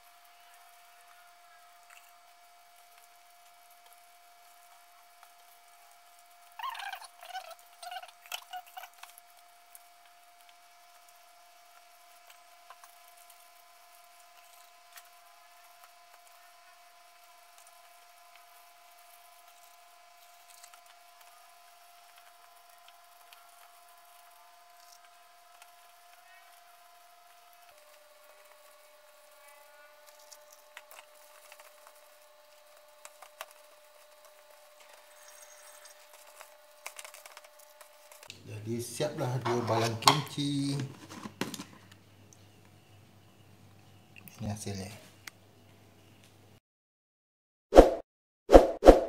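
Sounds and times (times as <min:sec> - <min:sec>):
faint high hum: 0:00.0 - 0:46.6
gloved hands squishing cabbage: 0:30.0 - 0:38.4.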